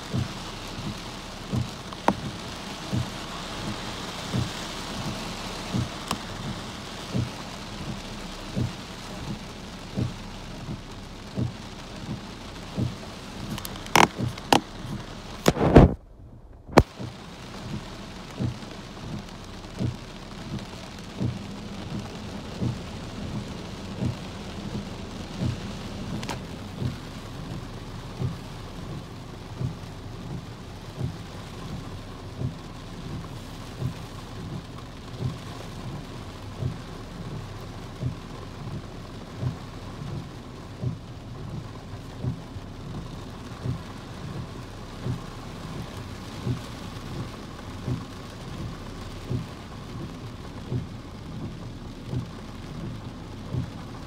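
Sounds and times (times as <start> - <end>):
heavy rain on a vehicle: 0.0 - 54.0
low thump: 15.4 - 17.0.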